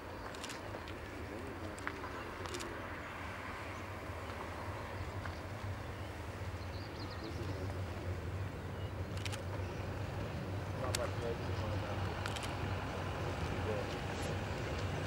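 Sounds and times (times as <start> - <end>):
tram rumbling on track: 2.8 - 15.0.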